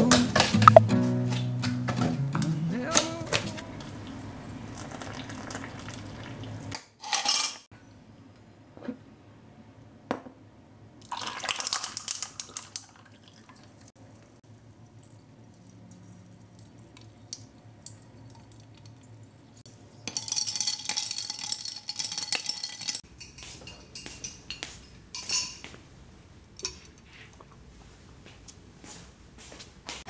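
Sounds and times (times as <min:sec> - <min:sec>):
milk pouring into glass: 0:04.7 - 0:06.4, 0:11.0 - 0:13.8
ice cubes clinking against glass: 0:20.0 - 0:24.4.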